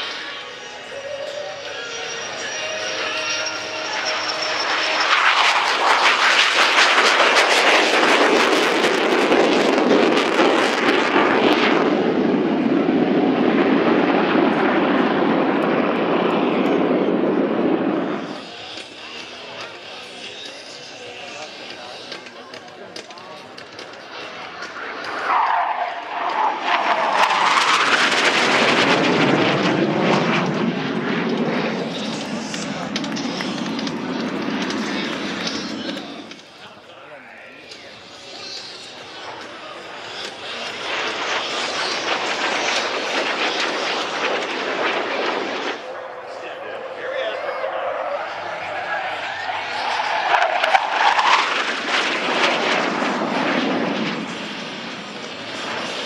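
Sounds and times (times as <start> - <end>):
jet flying past overhead: 0.0 - 56.0.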